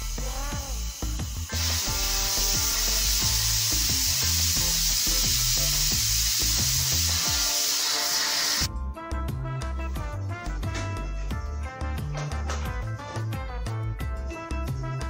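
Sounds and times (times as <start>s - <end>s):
cooking hiss on gas stove: 0.0s - 8.7s
background music with beat: 0.0s - 15.0s.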